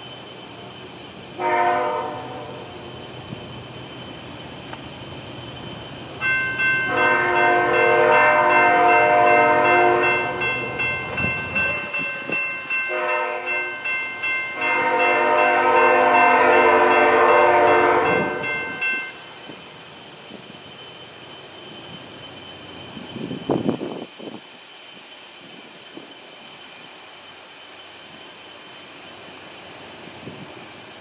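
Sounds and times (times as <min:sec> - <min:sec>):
locomotive air horn blasts: 0:01.4 - 0:02.7, 0:06.9 - 0:10.4, 0:12.9 - 0:13.8, 0:14.6 - 0:18.4.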